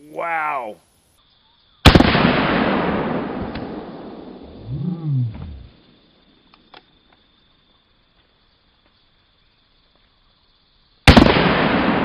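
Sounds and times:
high insect drone: 0:00.0 - 0:11.1
revolver gunshot with echo: 0:01.9 - 0:04.4, 0:11.1 - 0:12.0.

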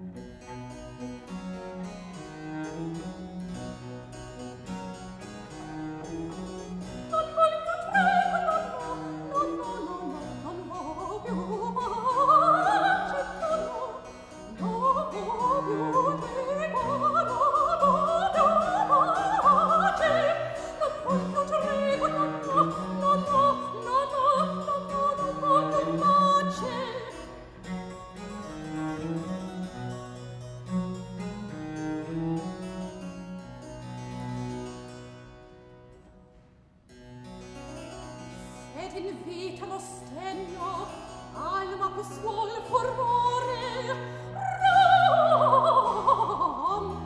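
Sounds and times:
cello: 0:00.0 - 0:47.0
soprano singing: 0:06.3 - 0:27.8, 0:38.7 - 0:47.0.

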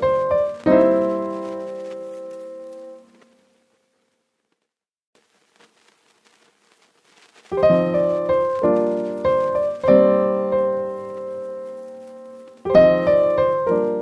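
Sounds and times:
piano chords: 0:00.0 - 0:03.3, 0:07.6 - 0:14.0.

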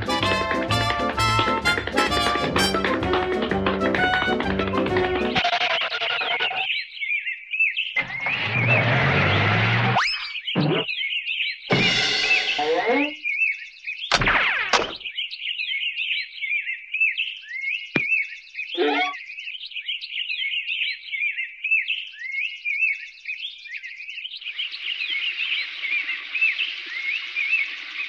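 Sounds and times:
cartoon bird tweeting: 0:10.0 - 0:10.9, 0:18.8 - 0:19.2.

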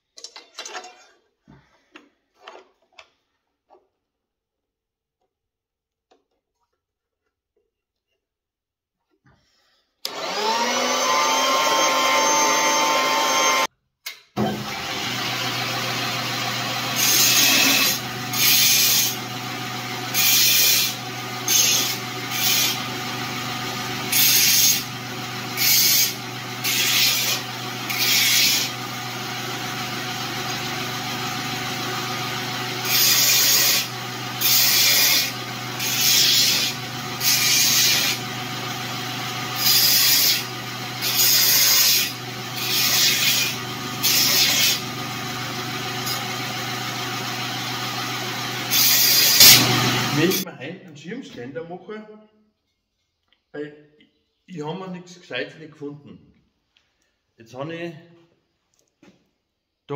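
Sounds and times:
band saw motor whine: 0:10.1 - 0:13.7, 0:14.4 - 0:50.5
belt grinder humming: 0:10.1 - 0:13.7, 0:14.5 - 0:50.4.

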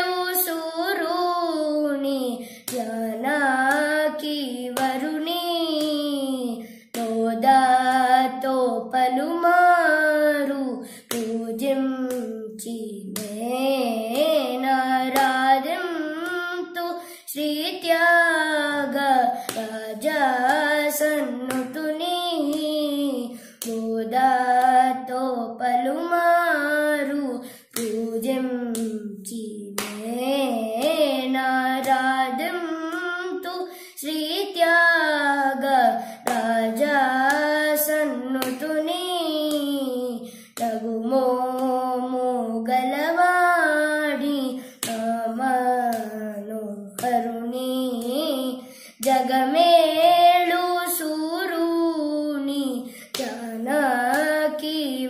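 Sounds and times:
boy singing unaccompanied: 0:00.0 - 0:55.0
hand clapping and thigh taps: 0:02.7 - 0:02.9, 0:11.1 - 0:11.4, 0:13.2 - 0:13.4, 0:15.1 - 0:15.4, 0:19.5 - 0:19.7, 0:20.4 - 0:22.8, 0:23.6 - 0:23.9, 0:27.8 - 0:28.0, 0:28.7 - 0:29.0, 0:29.8 - 0:30.1, 0:36.2 - 0:36.5, 0:37.2 - 0:38.7, 0:44.8 - 0:45.1, 0:45.9 - 0:46.2, 0:47.0 - 0:47.3, 0:53.1 - 0:53.4, 0:54.1 - 0:54.4.

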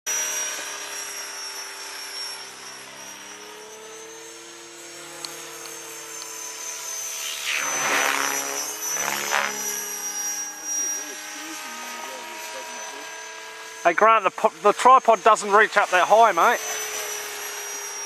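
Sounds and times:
model helicopter whining overhead: 0:00.1 - 0:18.0.

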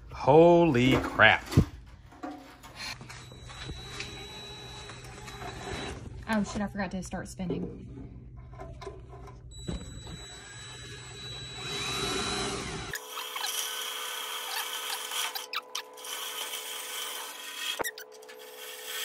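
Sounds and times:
cordless drill cutting sheet steel: 0:03.2 - 0:06.0, 0:09.6 - 0:19.0.

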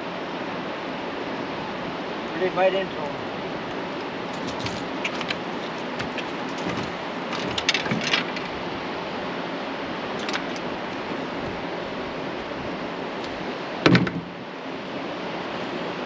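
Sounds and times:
river water flowing: 0:00.0 - 0:16.0
wind: 0:00.0 - 0:16.0
light clicks and knocks: 0:04.4 - 0:08.5.

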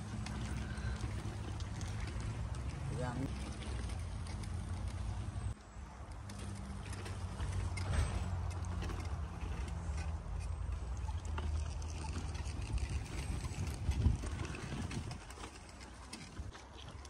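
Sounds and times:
wind buffeting microphone: 0:12.0 - 0:17.0.

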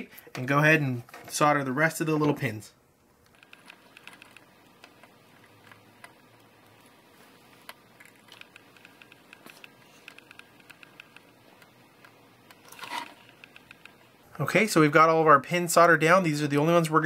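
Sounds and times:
low steady background: 0:00.0 - 0:17.0
soldering ticks and crackles: 0:03.2 - 0:14.2.

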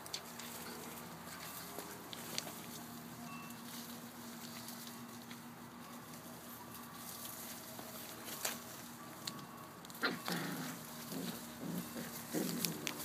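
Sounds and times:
faint steady hum: 0:00.0 - 0:13.0
puppy digging in dirt: 0:09.8 - 0:13.0.

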